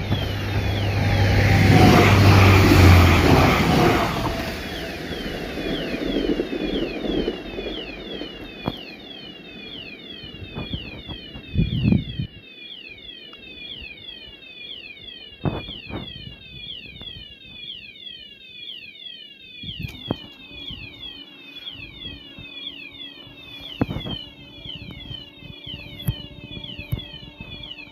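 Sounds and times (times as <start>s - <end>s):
level crossing warning chirp: 0.0s - 27.9s.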